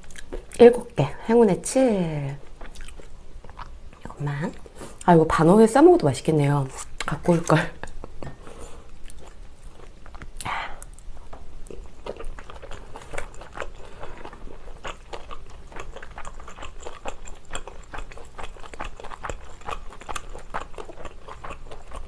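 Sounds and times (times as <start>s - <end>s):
chewing mouth clicks and smacks: 11.7s - 22.0s.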